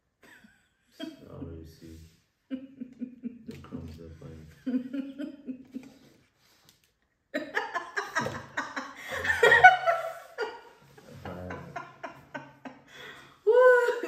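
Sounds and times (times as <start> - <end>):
people laughing: 2.5 - 6.1, 7.4 - 14.0.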